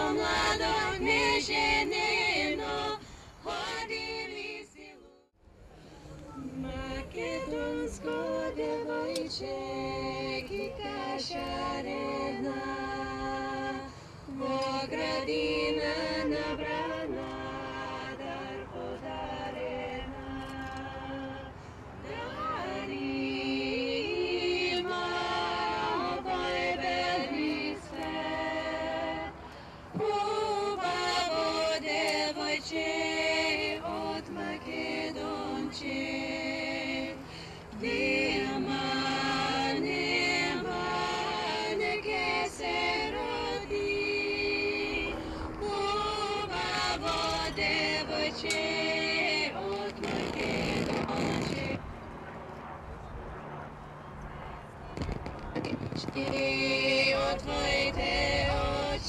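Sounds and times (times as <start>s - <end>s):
women singing in close harmony: 0.0s - 5.4s, 6.3s - 51.9s, 55.6s - 59.0s
singers breathing: 3.0s - 3.5s, 5.6s - 6.3s, 13.8s - 14.3s, 21.5s - 22.0s, 29.3s - 30.0s, 37.2s - 37.8s, 45.1s - 45.6s.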